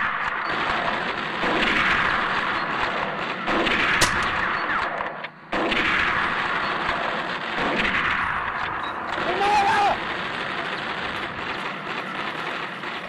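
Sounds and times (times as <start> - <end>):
gunfire and artillery: 0.0 - 13.0
sharp gunshot: 0.6 - 8.7.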